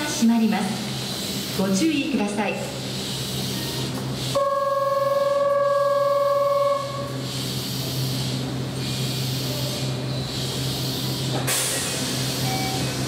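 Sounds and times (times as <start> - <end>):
electric train humming: 0.0 - 13.0
air brakes hissing: 7.0 - 13.0.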